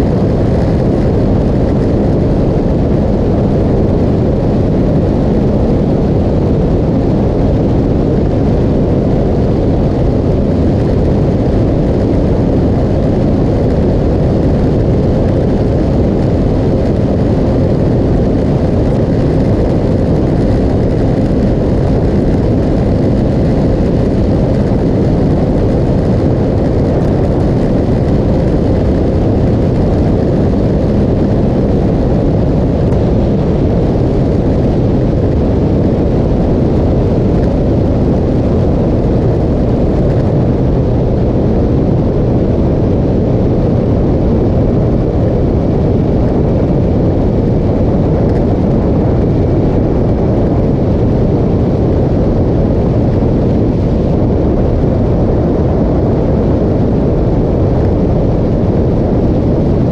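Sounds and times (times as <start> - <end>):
wind buffeting microphone: 0.0 - 59.9.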